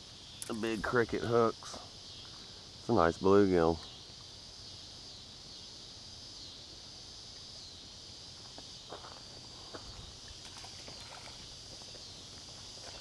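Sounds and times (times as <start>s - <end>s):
high-pitched insect chorus: 0.0s - 13.0s
footsteps on gravel: 8.4s - 13.0s.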